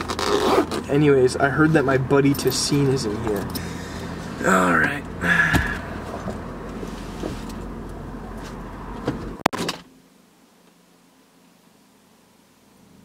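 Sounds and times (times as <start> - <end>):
car door shutting: 5.4 - 7.7, 8.4 - 9.9
rustling and light knocks: 6.1 - 7.7.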